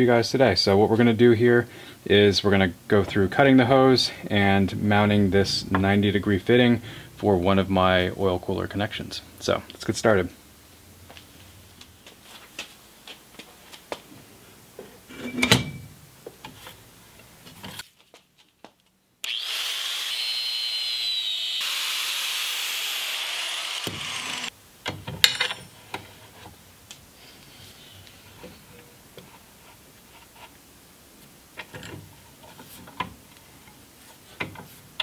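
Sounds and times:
angle grinder cutting hose: 19.2s - 24.5s.

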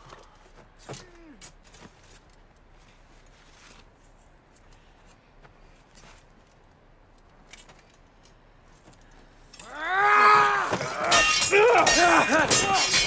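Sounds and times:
faint clicks and rustles: 0.0s - 9.7s.

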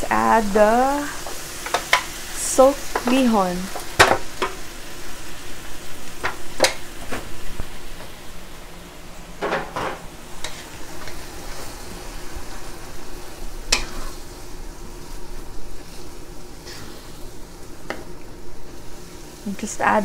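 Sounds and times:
food sizzling in a wok: 0.0s - 20.0s
spatula scraping a wok: 10.4s - 14.5s, 15.1s - 17.7s.

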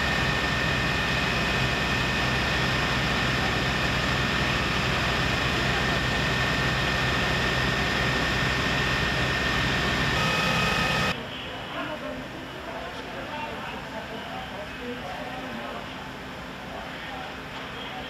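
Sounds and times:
diesel engine idling: 0.0s - 11.2s
high whine: 0.0s - 11.2s.

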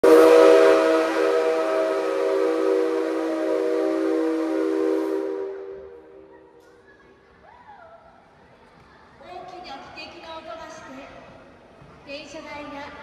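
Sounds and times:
steam locomotive whistle: 0.0s - 6.2s.

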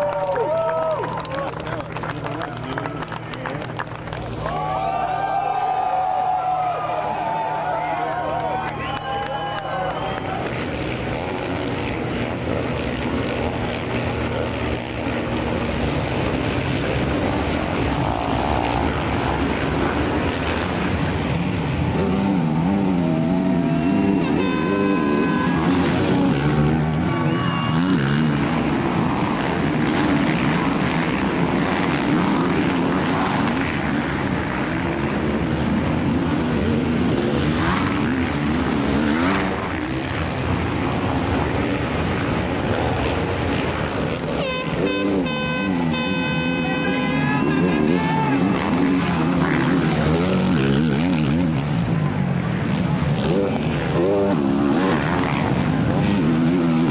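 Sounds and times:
dirt bike engines revving: 0.0s - 56.9s.

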